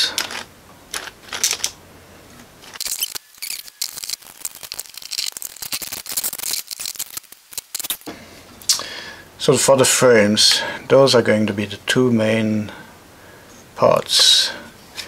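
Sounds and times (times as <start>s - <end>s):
plastic parts clicking and rattling: 0.0s - 1.8s, 2.6s - 8.1s.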